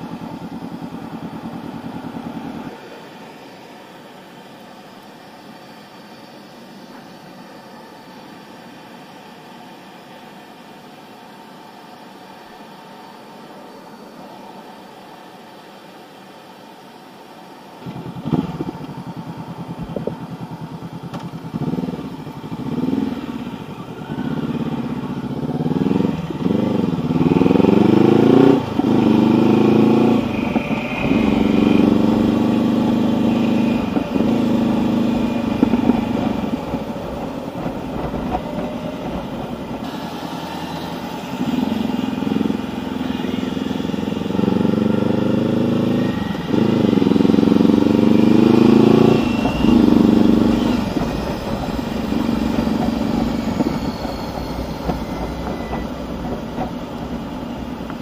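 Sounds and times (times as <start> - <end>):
motorcycle engine accelerating: 17.8 - 58.0.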